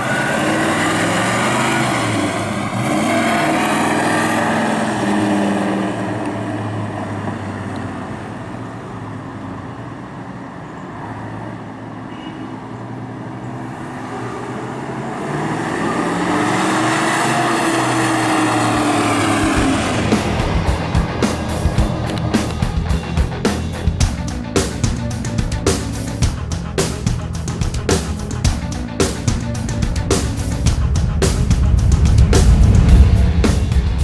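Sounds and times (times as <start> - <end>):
car engine driving past: 13.5 - 24.5, 27.0 - 34.0.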